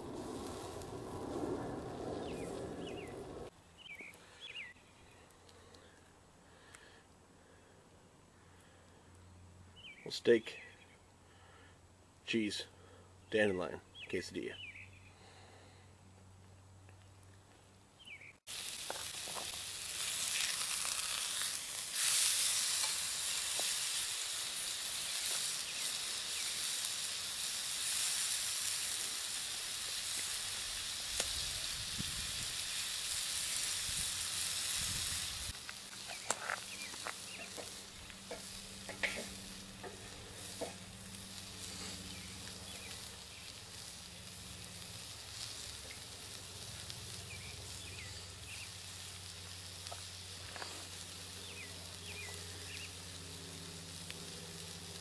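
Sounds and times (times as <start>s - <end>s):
steak sizzling in a skillet: 0.0s - 3.5s, 18.5s - 55.0s
sharp crackling pops: 0.0s - 4.3s, 18.5s - 55.0s.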